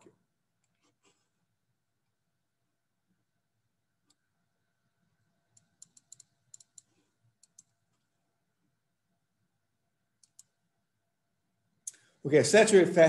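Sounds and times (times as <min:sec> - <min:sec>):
faint computer mouse clicks: 0:05.6 - 0:08.0, 0:10.2 - 0:10.6.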